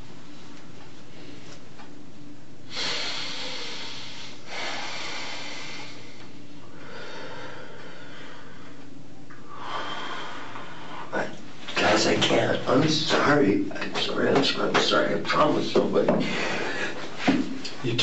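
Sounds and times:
low room hum: 0.0s - 18.0s
man breathing heavily: 2.7s - 11.2s, 16.2s - 17.5s.

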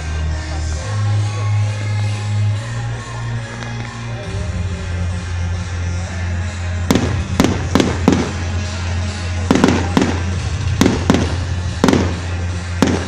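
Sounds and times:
fireworks bursting: 6.8s - 13.0s.

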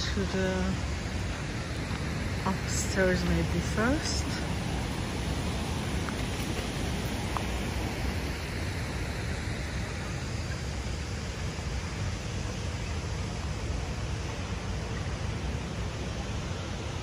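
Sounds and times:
river water rushing: 0.0s - 17.0s.

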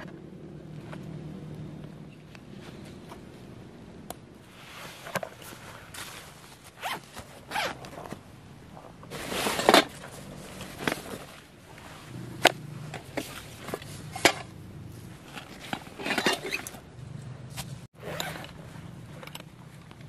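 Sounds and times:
backpack zipper pulled open: 6.8s - 8.0s, 18.0s - 18.6s.

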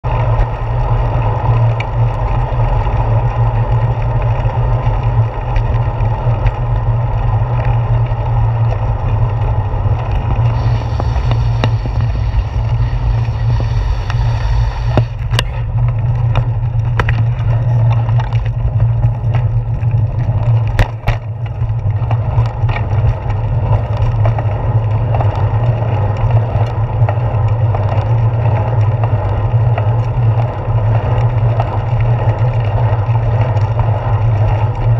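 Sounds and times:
wind and road rumble: 0.0s - 34.9s
sharp clicks and knocks: 14.8s - 19.6s, 20.2s - 22.9s.

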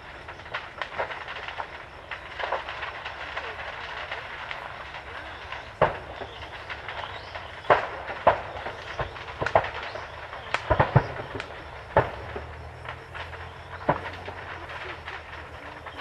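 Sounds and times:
fireworks bangs and pops: 0.0s - 16.0s
steady rumble: 9.9s - 16.0s.

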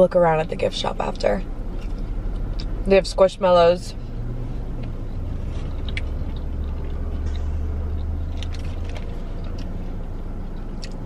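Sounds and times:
low rumble in car cabin: 0.0s - 11.0s
crunching of eating: 4.7s - 11.0s.

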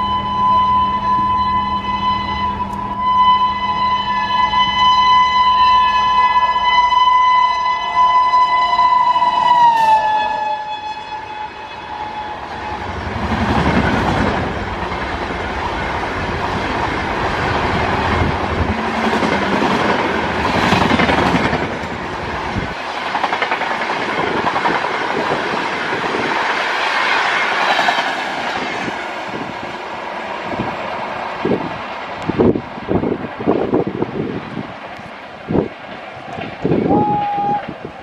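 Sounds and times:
locomotive horn blast: 0.0s - 13.1s, 18.2s - 20.8s
train wheels clattering over rails: 13.0s - 29.7s.

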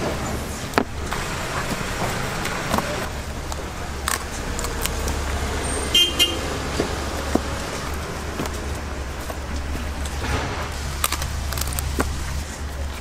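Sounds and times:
street noise with low hum: 0.0s - 13.0s
vehicle horn toot: 5.6s - 6.5s.

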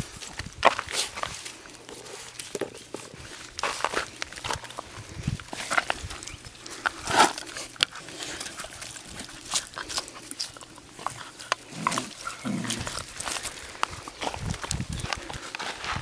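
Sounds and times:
paws on dry leaves and gravel: 0.0s - 16.0s
puppies making small vocal sounds: 7.5s - 13.8s.

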